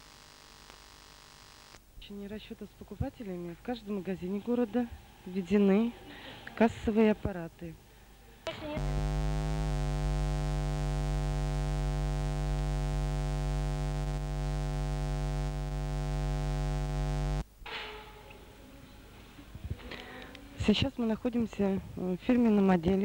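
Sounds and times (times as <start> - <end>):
loud electrical hum: 0.0 - 1.8, 8.8 - 17.4
faint background noise: 0.0 - 23.0.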